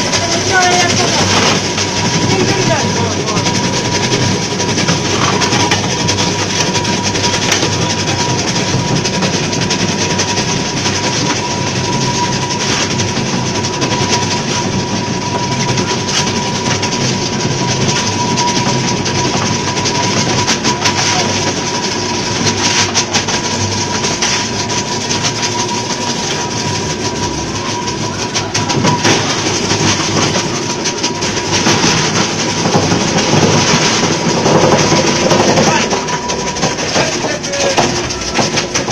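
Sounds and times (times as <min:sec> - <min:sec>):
ice crusher rattling: 0:00.0 - 0:38.9.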